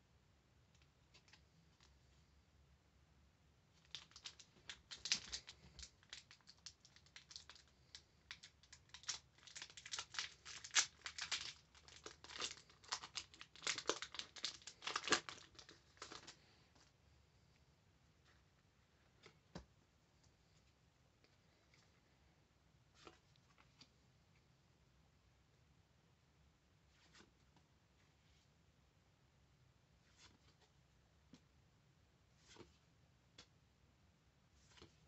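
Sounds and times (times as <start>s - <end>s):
foil wrapper crinkling and tearing: 3.9s - 16.4s.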